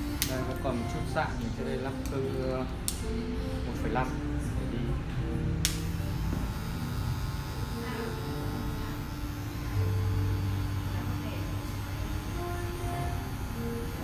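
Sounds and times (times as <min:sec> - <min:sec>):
electric hair clipper buzzing: 0:05.6 - 0:14.0.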